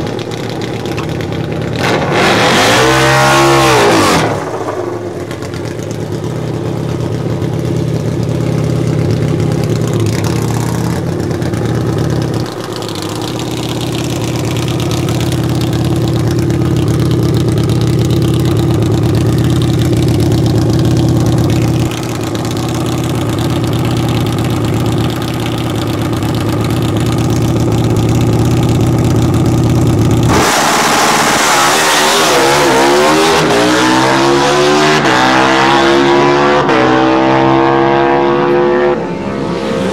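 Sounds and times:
motorcycle engine idling: 0.0 - 1.9, 4.4 - 30.3.

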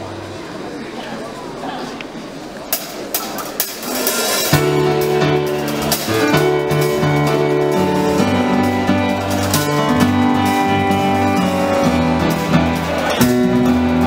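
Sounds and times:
murmur of voices: 0.0 - 14.0
sharp drum or cymbal hits: 3.2 - 14.0
live rock band playing: 3.5 - 14.0.

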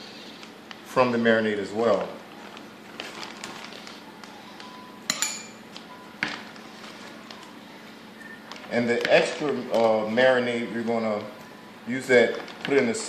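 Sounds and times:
plastic bag rustling: 0.0 - 5.0, 5.6 - 13.0
clinks against ceramic bowl: 5.1 - 5.6.

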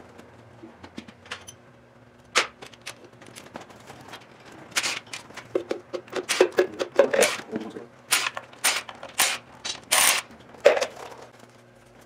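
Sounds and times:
ratchet wrench clicking: 8.1 - 10.2.

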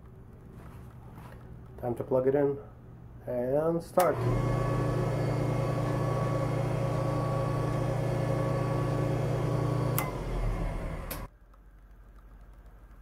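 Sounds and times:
surface grinder humming: 4.1 - 11.3.

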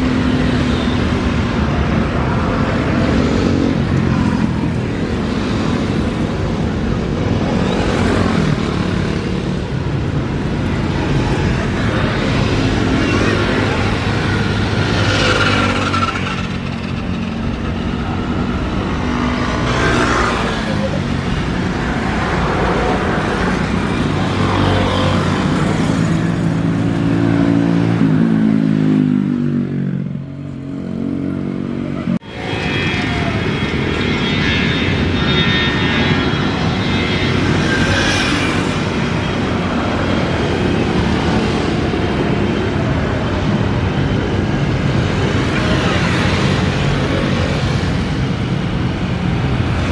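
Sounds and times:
jet engine noise on runway: 0.0 - 27.1, 32.1 - 49.9
jet roar of airliner taking off: 32.2 - 49.9.

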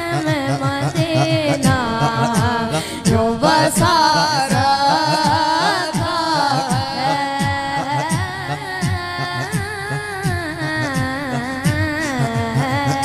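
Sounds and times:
boy singing into a microphone: 0.0 - 13.0.

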